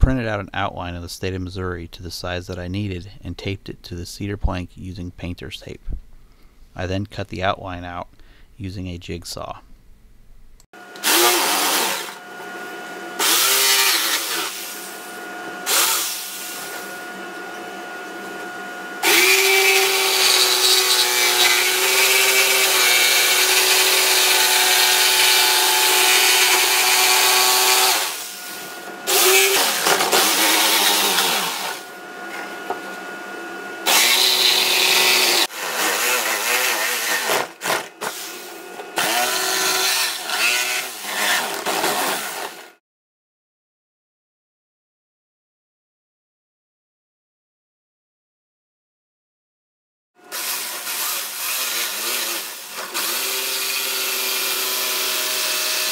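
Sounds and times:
jigsaw cutting wood: 0:10.8 - 0:32.9, 0:33.7 - 0:42.8, 0:50.2 - 0:55.9.

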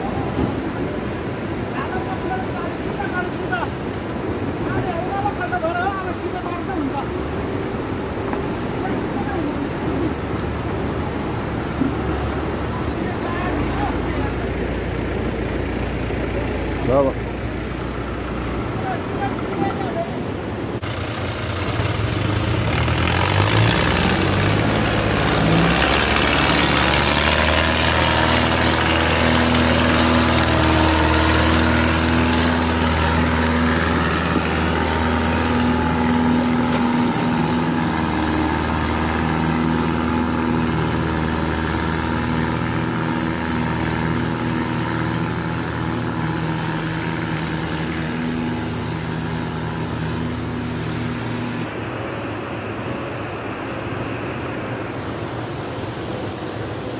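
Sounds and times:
tractor diesel engines under load: 0:00.0 - 0:56.9.

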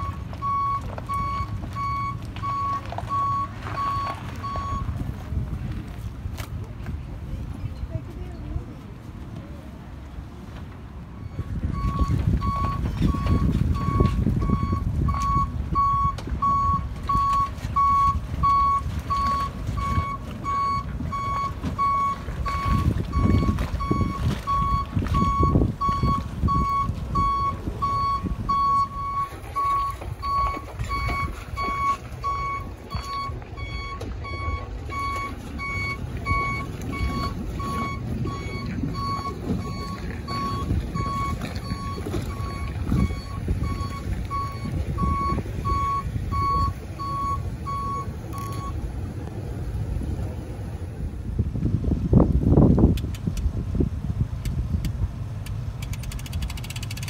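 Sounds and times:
truck reversing alarm beeping: 0:00.0 - 0:05.0, 0:11.1 - 0:48.8
truck engine running: 0:00.0 - 0:57.0.

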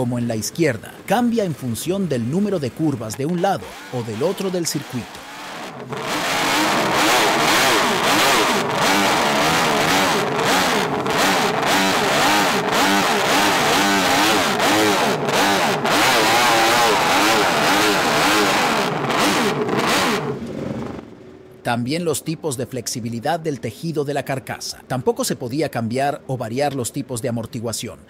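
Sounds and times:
racing engine revving: 0:01.0 - 0:21.2.

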